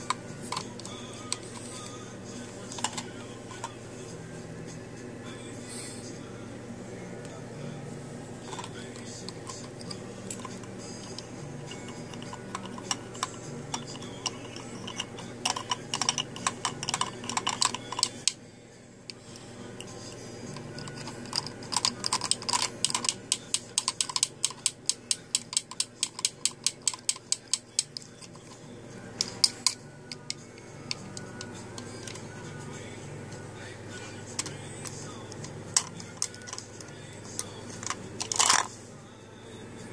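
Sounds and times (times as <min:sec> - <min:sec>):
beak clicking on plastic toy: 0:11.7 - 0:18.3, 0:20.8 - 0:28.4.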